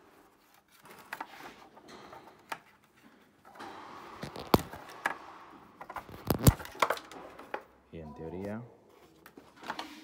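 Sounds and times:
plastic rustling and scraping: 0:02.6 - 0:07.6.

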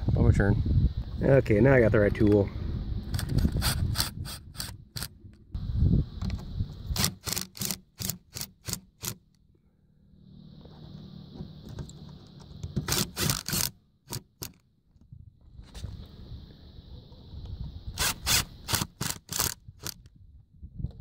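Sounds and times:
drill clutch clicking: 0:03.1 - 0:05.1, 0:07.0 - 0:09.4, 0:12.6 - 0:14.6, 0:18.0 - 0:20.0
drill whirring: 0:03.1 - 0:05.1, 0:07.0 - 0:09.3, 0:12.6 - 0:14.6, 0:18.0 - 0:20.0.

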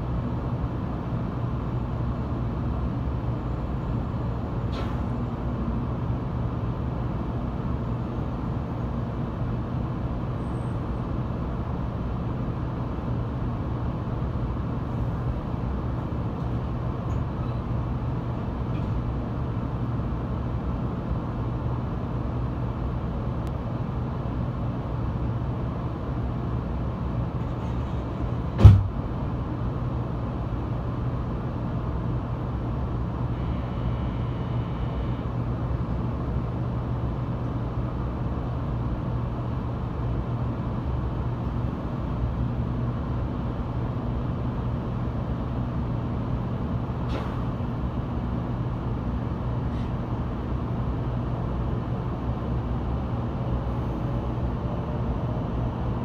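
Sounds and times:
train car low hum: 0:00.0 - 0:56.0
sharp thump: 0:28.6 - 0:29.0.

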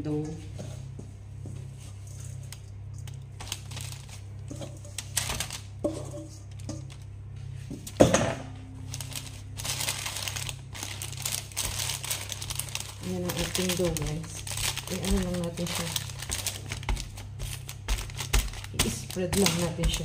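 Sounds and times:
low steady hum: 0:00.0 - 0:20.0
baking paper rustling and crinkling: 0:01.7 - 0:08.0, 0:08.8 - 0:20.0.

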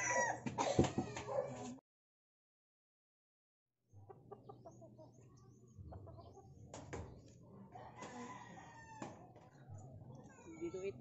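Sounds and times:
birds chirping: 0:03.9 - 0:11.0
chickens clucking: 0:04.0 - 0:10.6.

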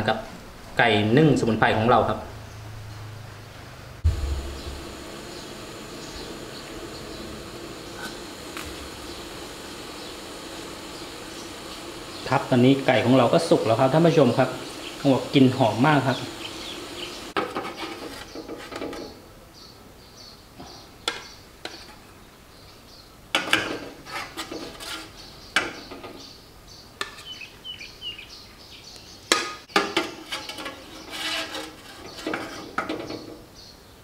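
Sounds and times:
metal spatula scraping steamer tray: 0:24.0 - 0:25.3, 0:30.0 - 0:32.8.

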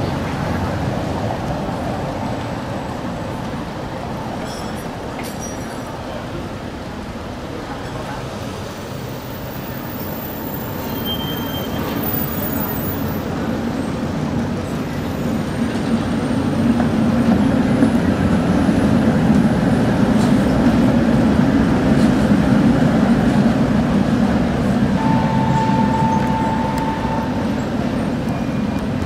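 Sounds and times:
tram passing by: 0:00.0 - 0:29.0
steady high tone: 0:25.0 - 0:28.8.

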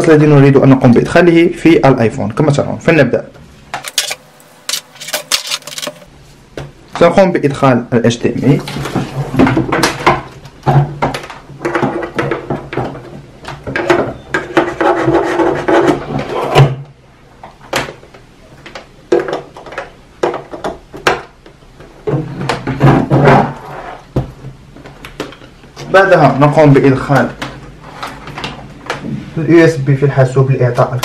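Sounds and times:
monitor handling knocks and scraping: 0:03.8 - 0:06.1.

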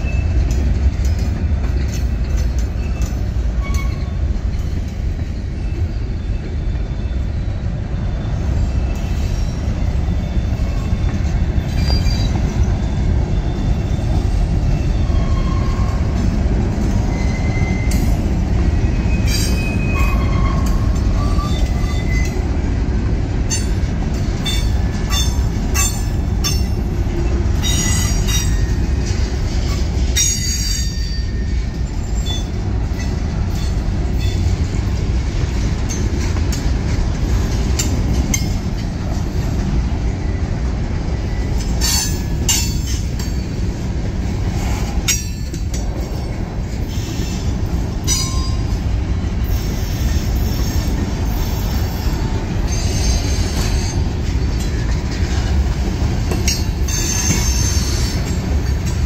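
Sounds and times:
freight cars rumbling on rails: 0:00.0 - 0:59.0
wheel squeals: 0:01.8 - 0:16.2, 0:17.0 - 0:18.2, 0:49.4 - 0:55.5.

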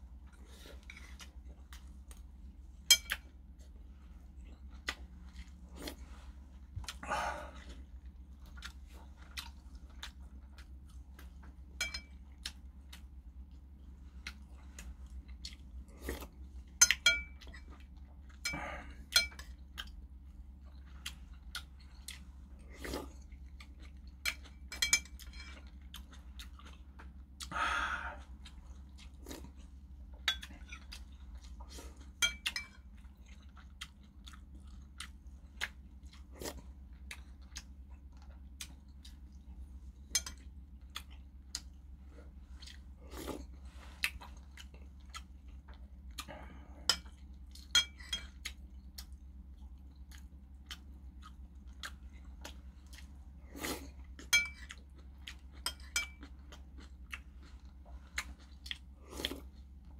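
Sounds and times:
steady low hum: 0:00.0 - 0:59.9
chewing: 0:00.2 - 0:59.9
spoon clinking on porcelain bowl: 0:02.9 - 0:03.2, 0:11.8 - 0:12.2, 0:16.8 - 0:17.4, 0:24.7 - 0:25.2, 0:47.7 - 0:48.3, 0:54.3 - 0:54.6, 0:55.7 - 0:56.2.

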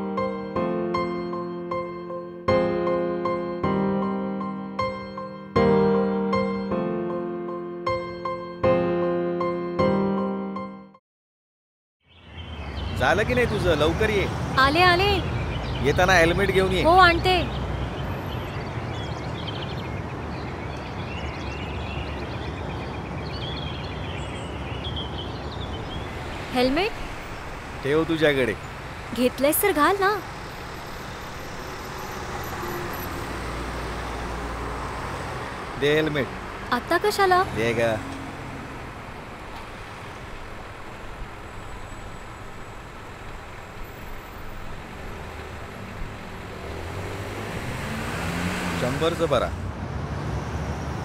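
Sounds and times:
birds chirping: 0:12.0 - 0:49.5
motor traffic rumble: 0:12.2 - 0:51.0.

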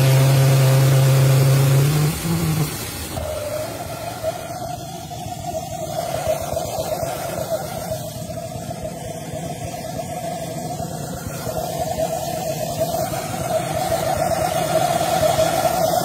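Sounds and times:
pressure jet engine hooting rumble: 0:00.0 - 0:16.0.

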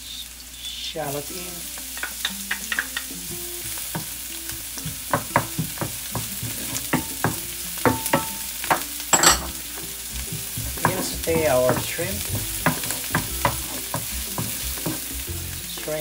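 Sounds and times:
onions sizzling in oil: 0:00.0 - 0:16.0
spatula scraping a pan: 0:05.8 - 0:07.3, 0:10.6 - 0:15.2.

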